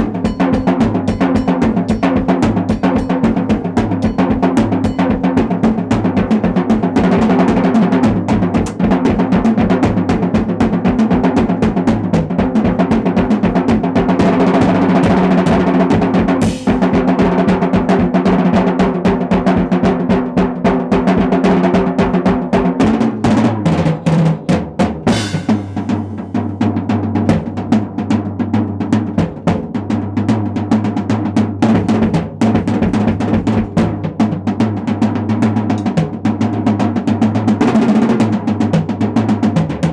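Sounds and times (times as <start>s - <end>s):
drum kit solo: 0.0s - 39.9s
cymbal crashes: 25.1s - 26.4s.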